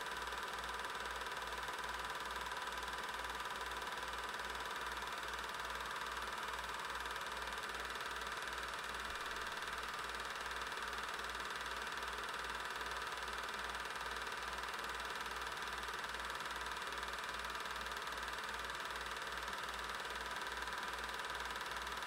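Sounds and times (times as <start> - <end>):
film projector running: 0.0 - 22.0.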